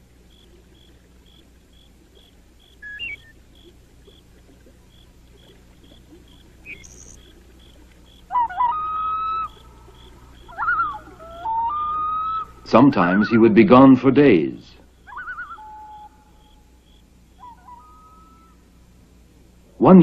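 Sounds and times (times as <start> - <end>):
faint regular ticks: 0.0 - 8.3, 9.4 - 11.3
short high chirps: 2.8 - 3.3, 6.6 - 7.2
loon wailing: 8.2 - 13.5, 15.0 - 16.6, 17.4 - 18.7.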